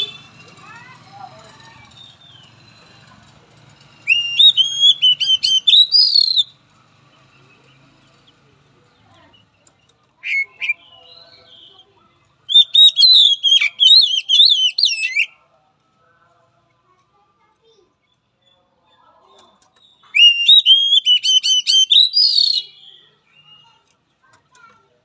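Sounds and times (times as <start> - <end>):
bird whistling song: 4.0 - 6.6, 12.5 - 15.4, 19.8 - 23.7.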